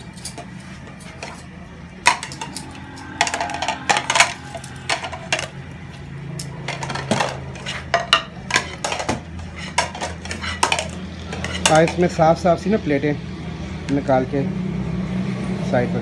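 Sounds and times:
steady low hum: 0.0 - 11.4
plates clattering and clinking: 0.2 - 5.6, 6.7 - 12.0.

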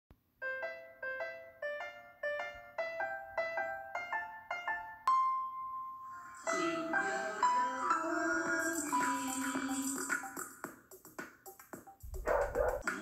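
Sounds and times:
bouncy keyboard intro music: 0.4 - 13.0.

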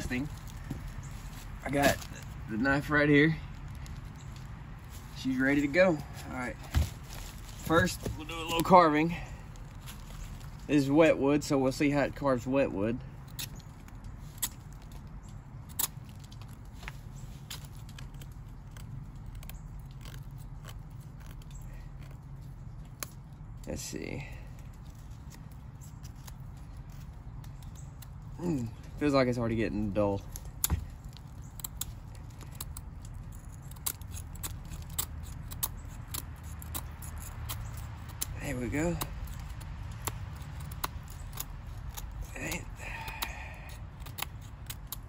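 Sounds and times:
knife scraping wet wood: 31.7 - 45.0.

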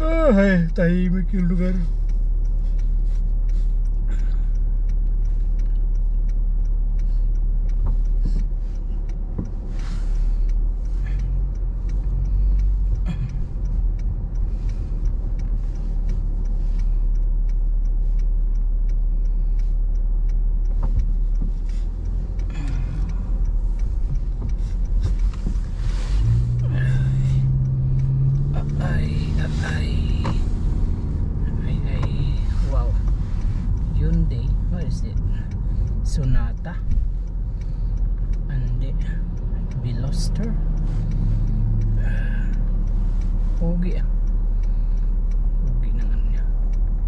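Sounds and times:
car engine rumble: 0.0 - 47.0
faint ticks: 0.0 - 47.0
road noise: 0.0 - 47.0.

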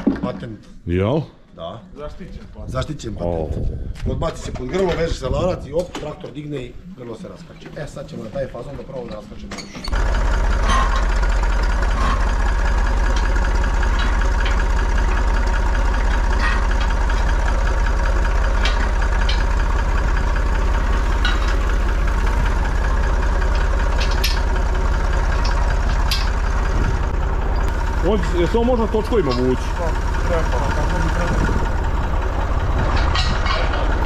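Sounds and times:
tractor engine idling: 9.9 - 34.0.

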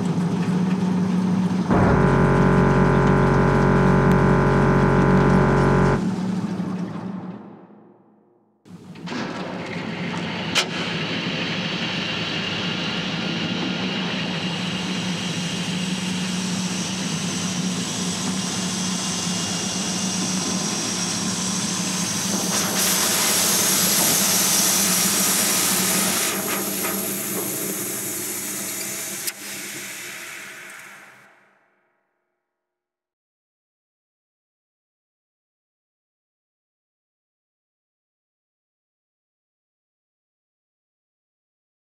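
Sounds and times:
industrial machinery humming and hissing: 1.7 - 6.0.

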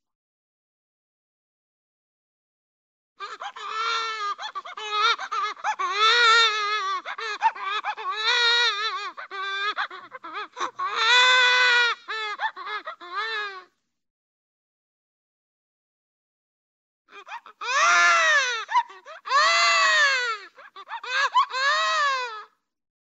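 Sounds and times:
cartoon baby crying: 3.2 - 13.7, 17.1 - 22.5.

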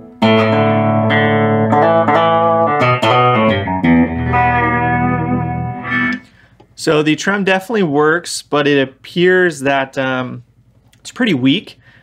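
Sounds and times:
electric guitar with tremolo: 0.0 - 6.5.

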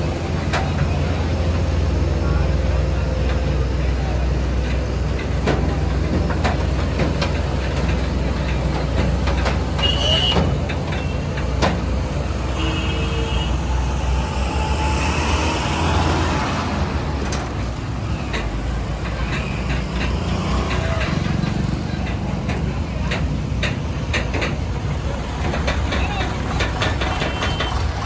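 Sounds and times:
diesel engine rumble: 0.0 - 28.0
vehicle passing close by: 12.2 - 18.0.

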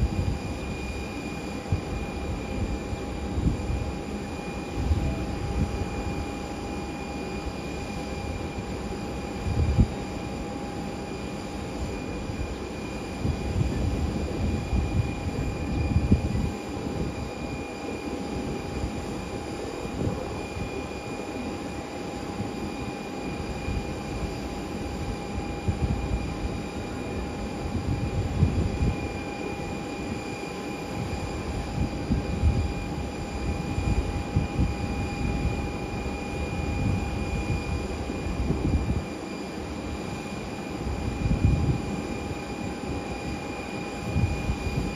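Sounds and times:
wind rumbling on microphone: 0.0 - 6.3, 9.3 - 10.5, 11.8 - 17.7, 18.3 - 21.0, 22.4 - 30.3, 30.9 - 39.2, 40.8 - 44.9
distant jet engines whining: 0.0 - 44.9.

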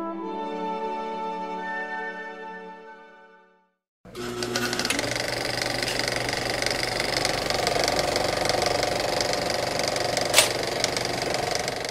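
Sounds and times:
film projector clatter: 4.1 - 11.9
sharp click: 9.9 - 11.1.

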